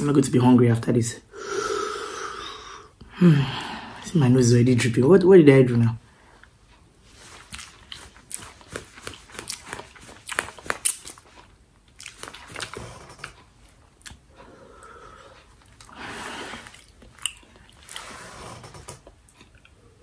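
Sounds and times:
person slurping and chewing noodles: 0:14.9 - 0:19.8.

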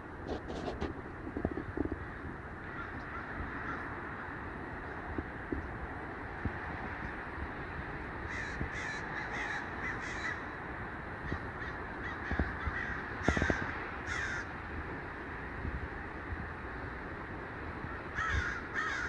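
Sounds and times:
crows cawing: 0:01.4 - 0:04.3, 0:08.2 - 0:10.6, 0:11.2 - 0:14.6, 0:17.9 - 0:19.0.

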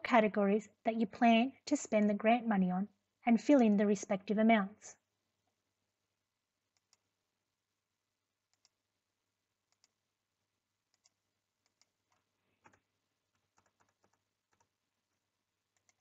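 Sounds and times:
computer mouse clicks: 0:06.7 - 0:07.1, 0:08.5 - 0:08.8, 0:09.7 - 0:10.0, 0:10.9 - 0:14.7, 0:15.7 - 0:16.0.

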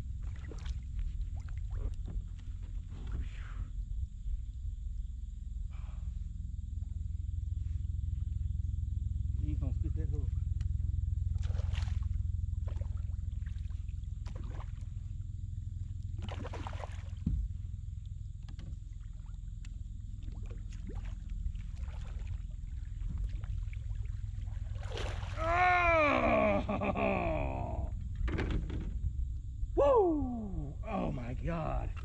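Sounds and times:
small water and tackle noises: 0:00.0 - 0:32.0
steady low rumble: 0:00.0 - 0:32.0
fish splashing at water surface: 0:11.4 - 0:14.9, 0:16.2 - 0:17.2, 0:20.3 - 0:25.7
man crying out: 0:25.4 - 0:27.9, 0:29.8 - 0:31.2.

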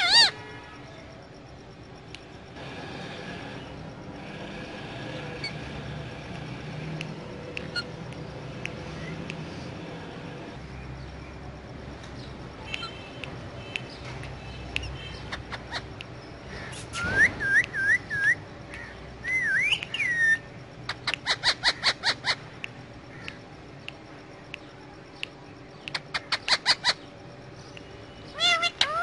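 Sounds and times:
parakeet chirping: 0:00.0 - 0:00.4, 0:07.6 - 0:08.0, 0:12.7 - 0:16.1, 0:19.3 - 0:22.5, 0:25.9 - 0:27.1, 0:28.2 - 0:29.0
parakeet whistling: 0:16.9 - 0:18.4, 0:19.2 - 0:20.5.

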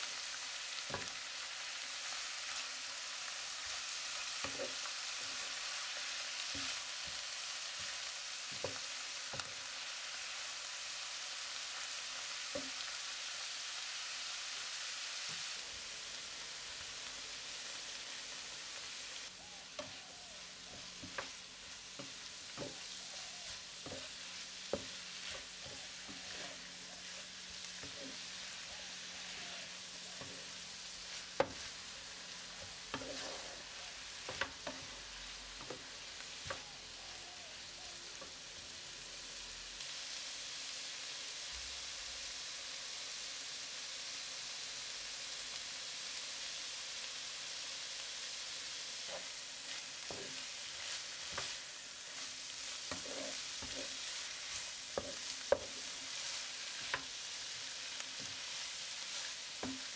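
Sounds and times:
vegetables sizzling in oil: 0:00.0 - 0:59.9
wooden spatula knocking on pan: 0:23.8 - 0:25.8.

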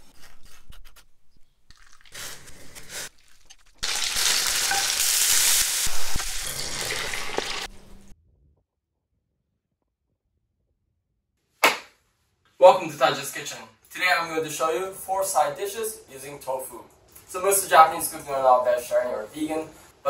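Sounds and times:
food sizzling in oil: 0:03.8 - 0:07.8.

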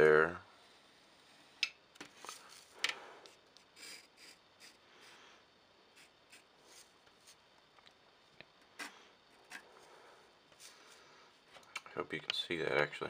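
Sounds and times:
pencil scratching on paper: 0:03.7 - 0:04.8, 0:05.9 - 0:07.4, 0:08.8 - 0:09.8.

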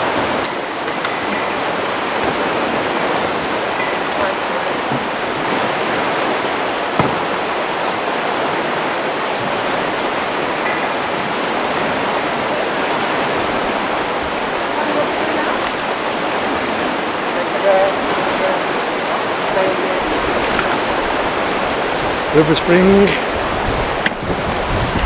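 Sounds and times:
river water rushing: 0:00.0 - 0:25.0
short knock: 0:07.0 - 0:07.2.

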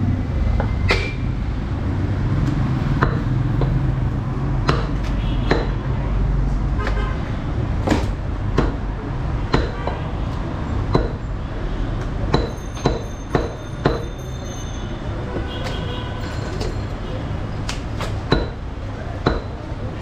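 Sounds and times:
cleaver chopping meat and bone: 0:02.4 - 0:04.0, 0:04.6 - 0:05.8, 0:07.8 - 0:09.9, 0:10.9 - 0:11.2, 0:12.0 - 0:14.1, 0:17.7 - 0:19.7.

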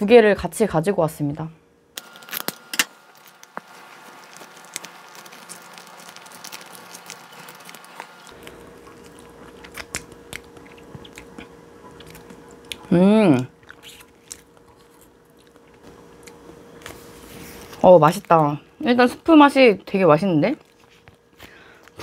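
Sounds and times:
biting and chewing: 0:02.0 - 0:18.4.

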